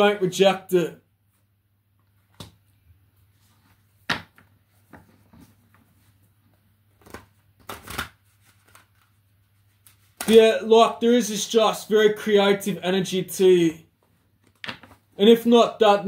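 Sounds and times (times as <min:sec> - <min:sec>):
cards being shuffled: 0:06.9 - 0:10.4.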